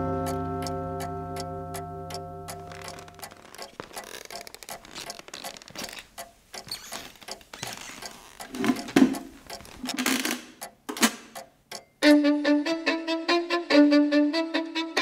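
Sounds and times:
small clicks and scrapes: 0:02.7 - 0:10.5.

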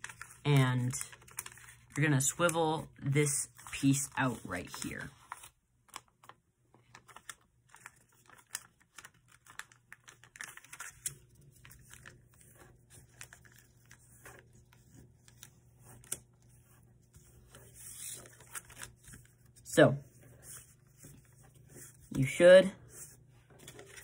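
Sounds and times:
paper crinkling and creasing: 0:00.0 - 0:24.0.

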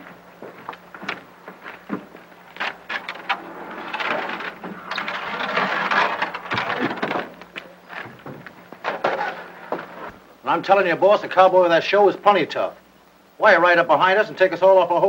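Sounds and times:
wooden plank scraping: 0:02.0 - 0:10.2.

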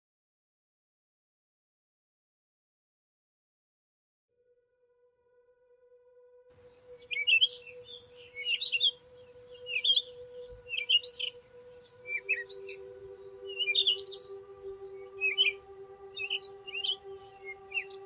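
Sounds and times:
steady droning tone: 0:04.4 - 0:18.0
birds chirping: 0:06.6 - 0:18.0.

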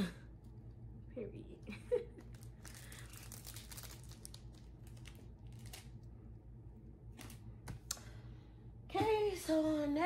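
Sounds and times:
steady low hum: 0:00.0 - 0:10.0
plastic packaging crinkling: 0:02.2 - 0:06.1.

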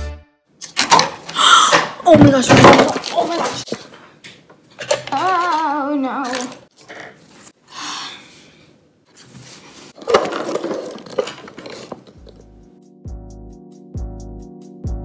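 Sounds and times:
objects clattering on wooden table: 0:10.0 - 0:12.4.

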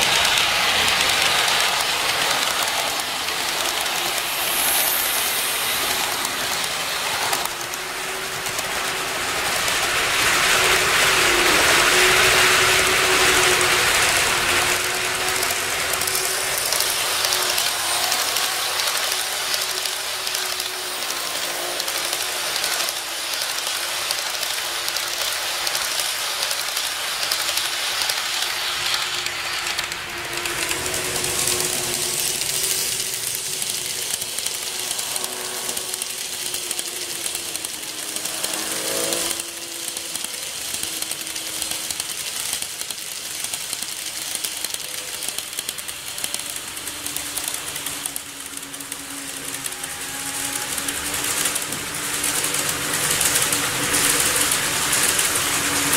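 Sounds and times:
model train wheels rattling: 0:00.0 - 0:55.9.

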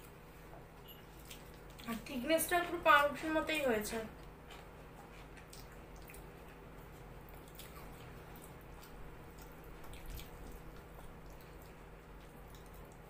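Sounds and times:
steady low hum: 0:00.0 - 0:13.0
wet eating sounds: 0:01.1 - 0:02.1, 0:04.1 - 0:13.0.

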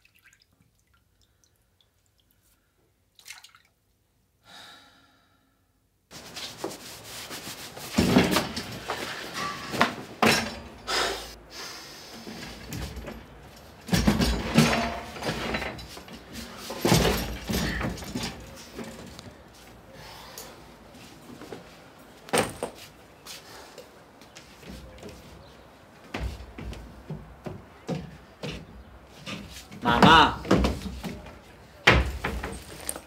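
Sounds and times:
drafting table knocks and rustling: 0:07.9 - 0:10.9, 0:12.4 - 0:19.3, 0:22.3 - 0:22.9, 0:26.0 - 0:33.0.

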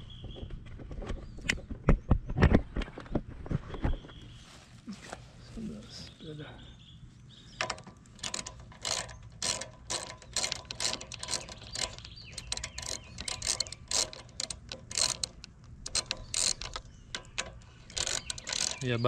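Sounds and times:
ratchet wrench clicking: 0:07.6 - 0:19.0.

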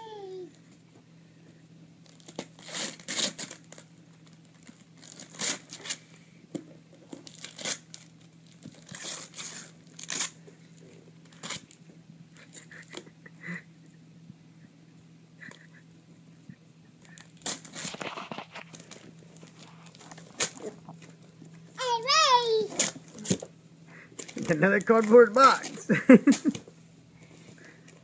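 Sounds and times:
faint steady hum: 0:00.0 - 0:28.0
wrapping paper tearing and crinkling: 0:02.0 - 0:06.0, 0:07.1 - 0:10.4, 0:11.2 - 0:11.8, 0:17.0 - 0:21.1, 0:22.3 - 0:23.5, 0:24.2 - 0:26.6.

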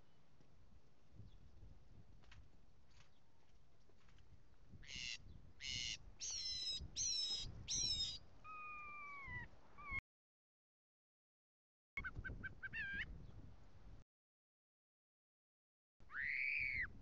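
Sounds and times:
mockingbird singing: 0:04.9 - 0:10.0.

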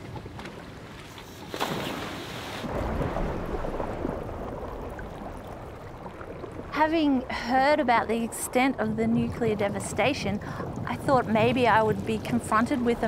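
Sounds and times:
sea: 0:00.0 - 0:13.0
wind: 0:00.0 - 0:13.0
splash into water: 0:01.3 - 0:06.8
underwater bubbles rushing: 0:02.7 - 0:13.0.

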